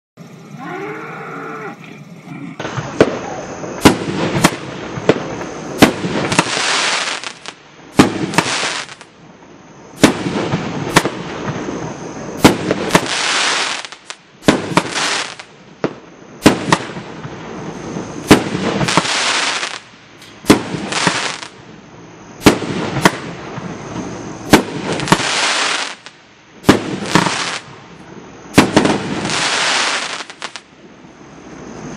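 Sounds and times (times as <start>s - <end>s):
fireworks crackling fizz: 0.2s - 31.9s
fireworks launch and burst reports: 2.6s - 9.1s, 18.2s - 19.8s.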